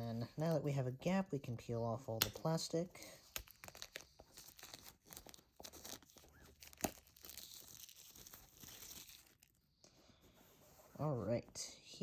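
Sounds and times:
plastic wrap crinkling and tearing: 0:03.2 - 0:09.6.

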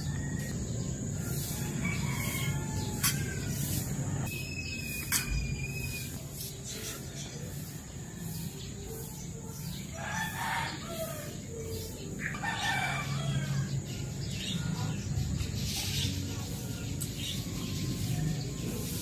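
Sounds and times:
rooster crowing: 0:00.0 - 0:03.8, 0:09.9 - 0:11.4, 0:12.3 - 0:13.7.

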